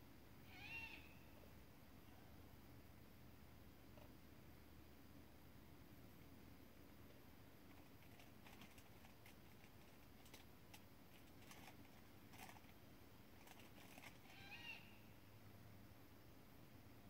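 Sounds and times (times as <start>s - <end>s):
low hiss: 0.0s - 17.0s
faint animal call: 0.4s - 2.4s, 13.4s - 15.3s.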